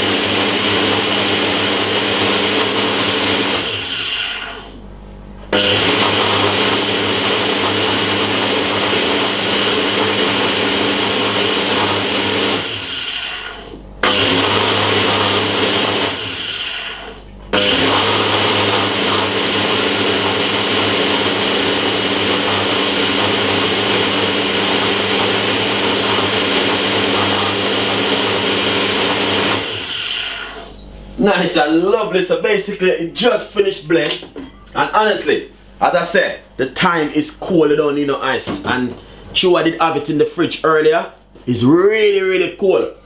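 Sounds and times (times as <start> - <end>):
blender motor running: 0.0 - 30.8.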